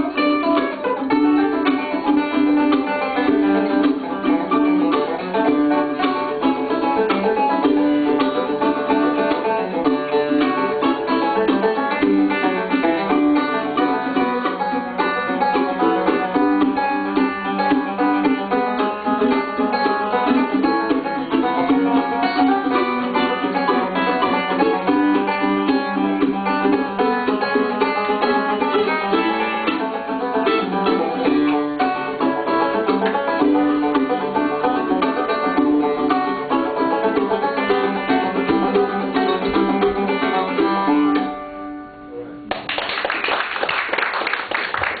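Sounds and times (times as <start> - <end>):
banjo: 0.0 - 42.6
mandolin: 0.0 - 45.0
audience applause: 42.5 - 45.0.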